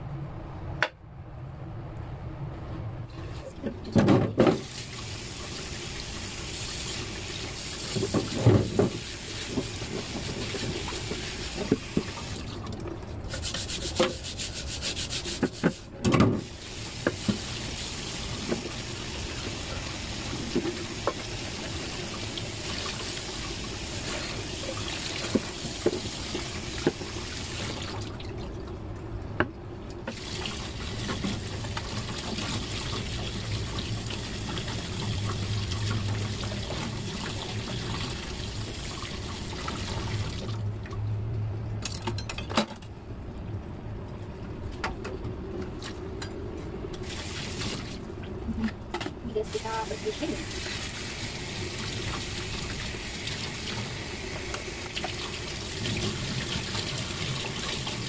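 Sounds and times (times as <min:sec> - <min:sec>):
rubbing and knocks of washing: 0:03.1 - 0:28.6, 0:30.1 - 0:40.6
tap water running into sink: 0:03.9 - 0:12.6, 0:16.3 - 0:28.1, 0:30.1 - 0:40.6, 0:49.6 - 0:58.0.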